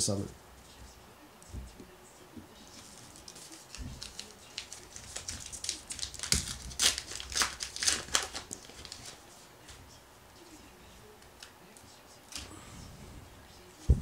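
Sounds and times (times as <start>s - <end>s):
card wrapper crinkling: 2.8s - 9.2s.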